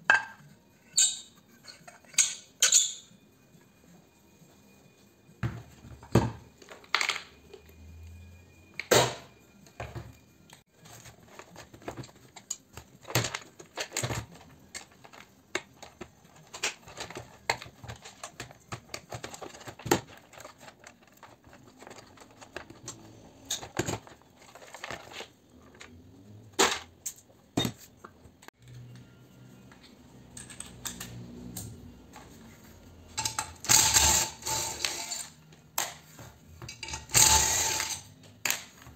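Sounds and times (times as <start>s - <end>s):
clinks of small metal parts: 30.3s - 31.2s.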